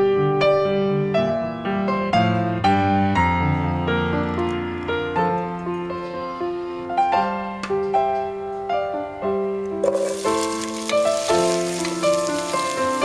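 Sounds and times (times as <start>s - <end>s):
gentle piano music: 0.0s - 13.0s
onion sizzling in hot oil: 9.8s - 13.0s.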